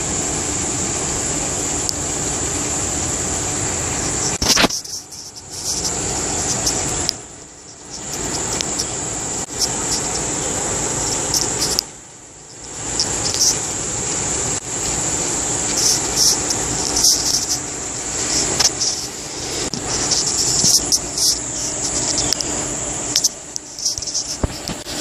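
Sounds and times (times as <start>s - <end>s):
high-pitched insect chorus: 0.0s - 25.0s
rushing noise: 0.0s - 25.0s.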